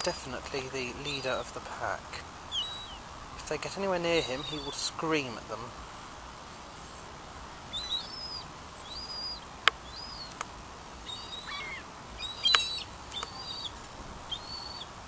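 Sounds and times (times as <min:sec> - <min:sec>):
gulls calling: 0:00.0 - 0:05.8, 0:06.7 - 0:15.0
sharp clicks: 0:12.5 - 0:13.4.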